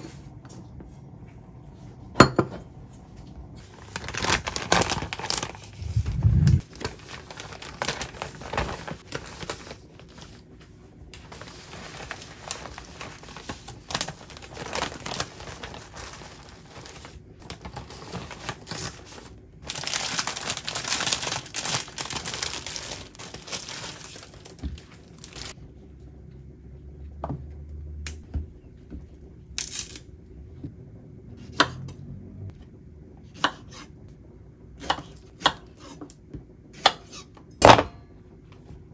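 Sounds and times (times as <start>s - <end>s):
plastic bags crinkling: 3.6s - 10.4s, 11.2s - 25.6s.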